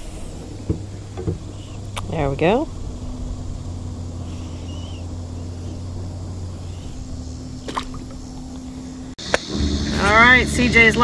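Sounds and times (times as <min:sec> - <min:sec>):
faint chirp: 0:00.0 - 0:09.2
low rumble: 0:00.0 - 0:11.0
fish splashing into water: 0:06.6 - 0:09.1.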